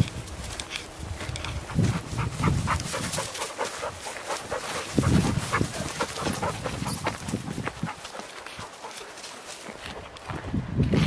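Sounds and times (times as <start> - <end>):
footsteps on dry grass: 0.0 - 11.0
dog breathing: 1.6 - 9.4.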